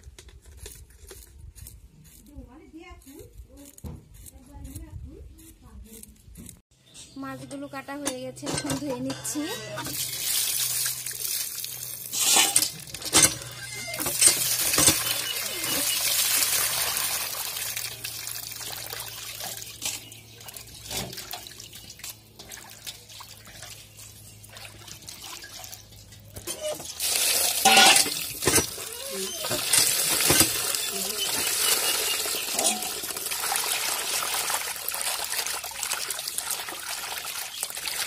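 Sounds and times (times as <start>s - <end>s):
water sloshing with clinks: 6.8s - 38.0s
water pouring into metal bowl: 9.9s - 13.2s, 14.0s - 38.0s.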